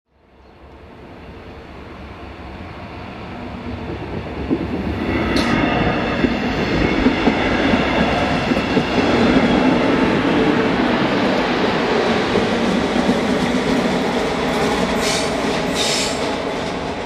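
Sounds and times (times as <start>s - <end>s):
train high whine: 0.2s - 17.0s
train wheels rumbling on rails: 0.6s - 17.0s
sharp high screech: 15.0s - 16.2s.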